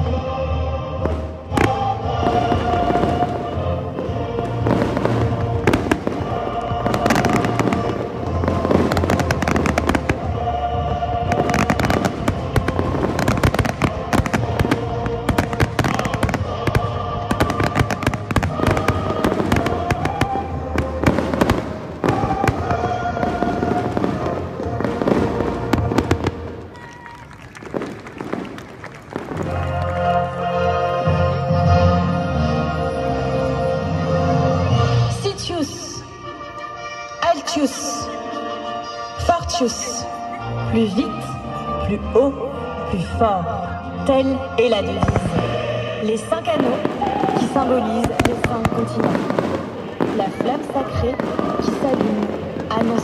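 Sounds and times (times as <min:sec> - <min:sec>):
loud music: 0:00.0 - 0:26.7, 0:29.1 - 0:53.0
fireworks bursting and crackling: 0:01.0 - 0:30.4, 0:45.0 - 0:53.0.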